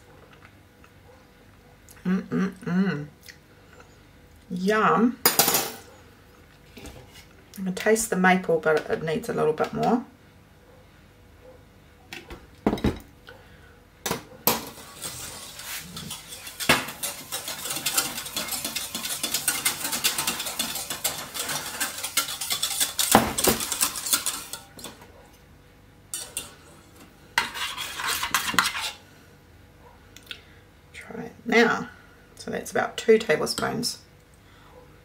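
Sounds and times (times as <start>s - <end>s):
whisk scraping a saucepan: 14.5s - 25.1s, 26.1s - 29.0s.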